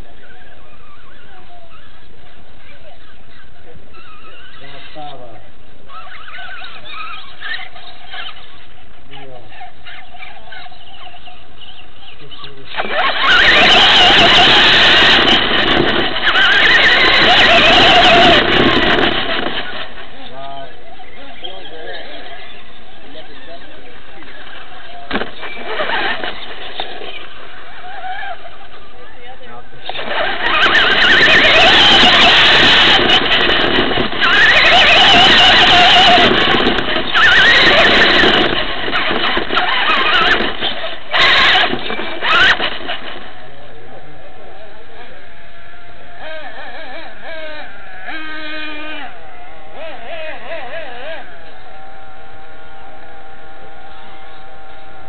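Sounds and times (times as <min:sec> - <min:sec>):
steady clatter: 0:12.7 - 0:20.4, 0:23.9 - 0:28.4, 0:29.8 - 0:43.8
wind on microphone: 0:12.7 - 0:28.8, 0:29.9 - 0:45.5
toy truck motor whine: 0:12.8 - 0:20.0, 0:29.8 - 0:43.5, 0:45.2 - 0:55.0.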